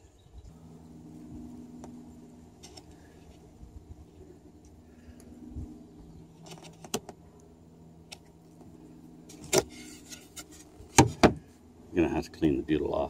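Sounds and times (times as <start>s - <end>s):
wooden hatch knock and scrape: 10.9s - 11.4s.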